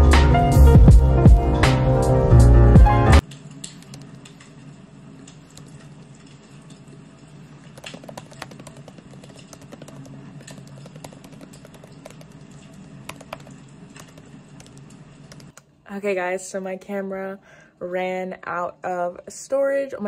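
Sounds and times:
laptop keyboard typing: 7.7 - 15.6.

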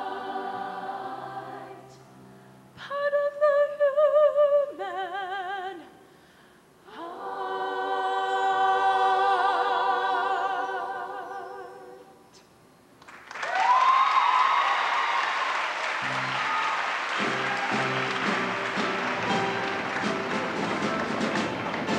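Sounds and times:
choir singing held chord: 0.0 - 2.2, 6.9 - 12.2
audience applause and cheering: 13.0 - 21.9
instrumental music: 17.2 - 21.9.

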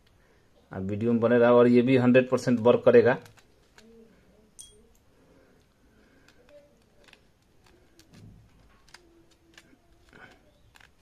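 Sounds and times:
small metal parts clicking: 4.6 - 11.0.

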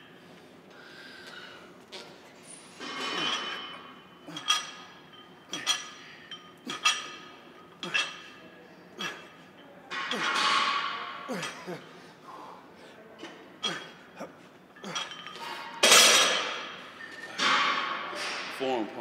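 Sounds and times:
barbell plates clinking: 2.8 - 8.2.

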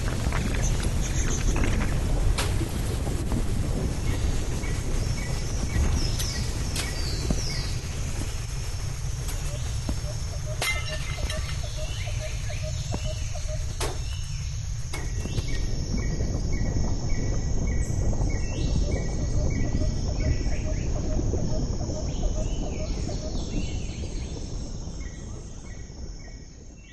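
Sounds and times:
insects chirping: 0.0 - 26.9
low rumbling noise: 0.0 - 26.9.

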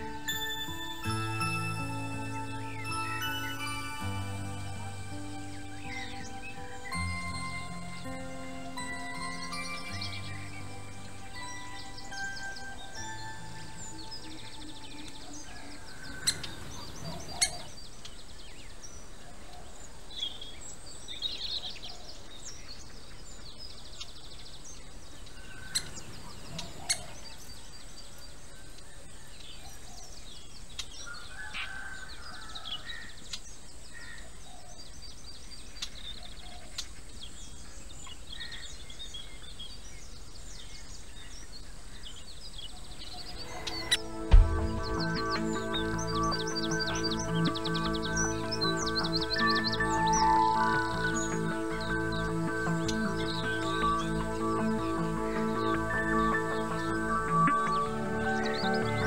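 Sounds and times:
steady outdoor hiss: 0.0 - 59.0
birds chirping and calling: 2.0 - 18.2, 25.2 - 27.8, 40.6 - 59.0.

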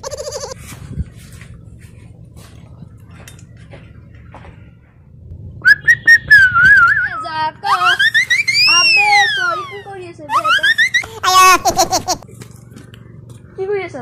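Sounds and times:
loud wavering whistle: 5.6 - 7.3.

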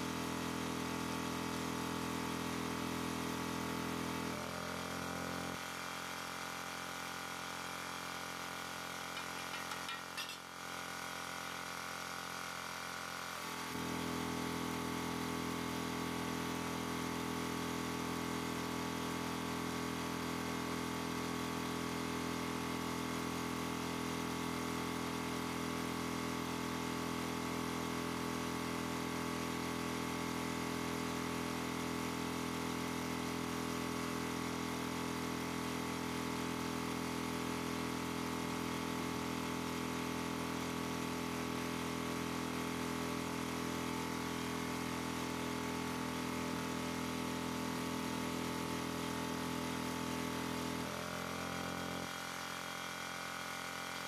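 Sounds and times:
steady machine hum: 8.5 - 12.8.

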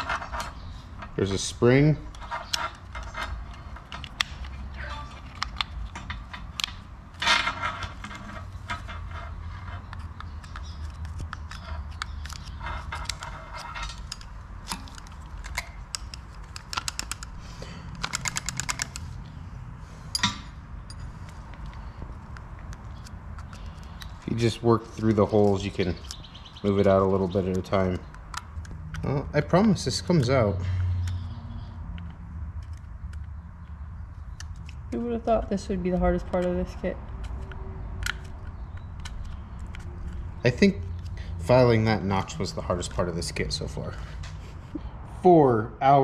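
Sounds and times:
screwdriver tapping and scraping metal: 0.0 - 1.2, 2.1 - 4.6, 5.2 - 17.3
rattling metal clicks: 2.1 - 4.6, 5.2 - 19.2.

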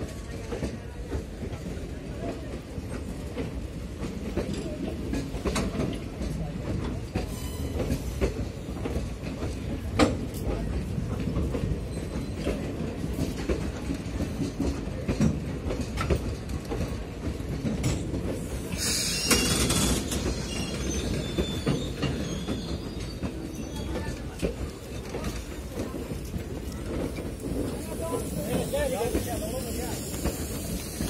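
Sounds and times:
train wheels rumbling over rail joints: 0.0 - 31.0
wheels screeching on rail: 4.5 - 10.1, 17.8 - 31.0.

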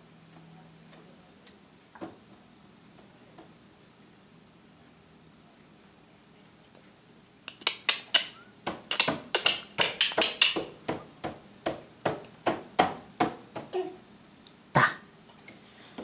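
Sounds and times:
child's hands slapping and clapping: 7.5 - 10.8.

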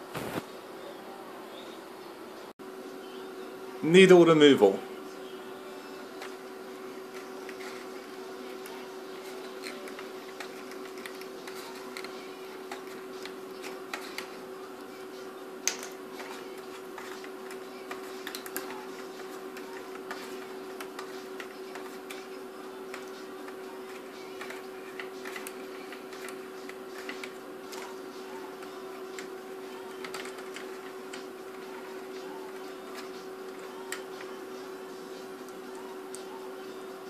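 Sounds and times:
steady hum: 0.0 - 37.0.

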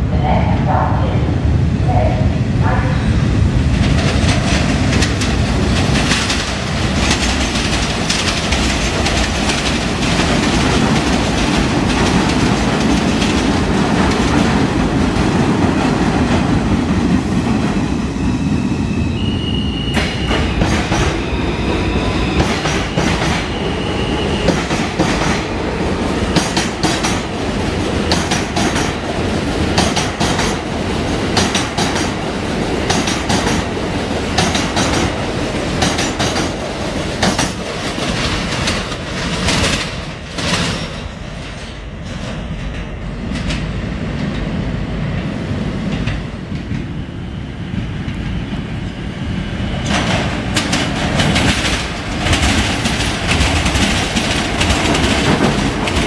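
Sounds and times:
train wheels rumbling on rails: 0.0 - 56.0
clickety-clack over rail joints: 3.8 - 17.8, 19.9 - 21.2, 22.3 - 23.6, 24.4 - 47.0, 49.7 - 56.0.

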